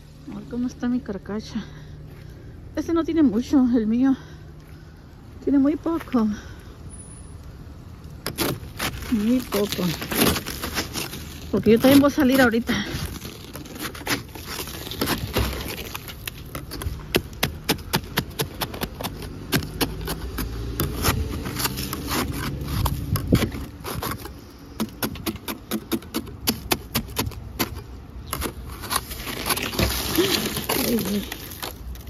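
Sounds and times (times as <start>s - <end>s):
scraper scraping ice off windshield: 8.2s - 32.0s.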